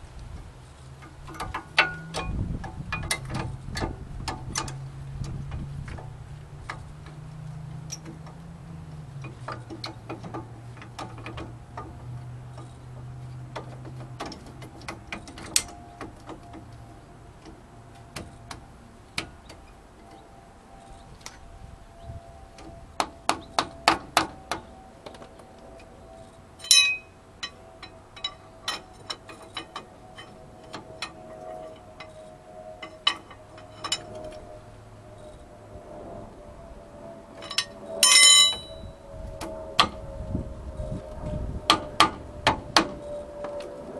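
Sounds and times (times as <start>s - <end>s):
low hum: 14.4s - 43.9s.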